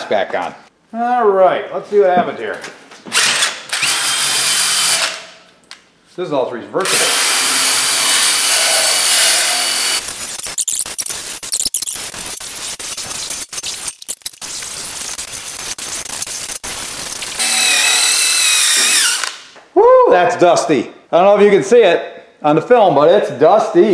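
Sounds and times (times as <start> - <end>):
wire brush scrubbing metal: 8.6 - 17.9.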